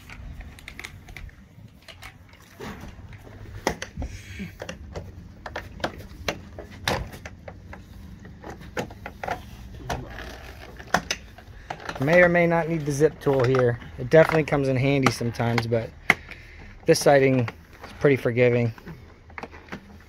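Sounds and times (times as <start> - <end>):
siding panels knocking and clicking: 0.0 - 10.1.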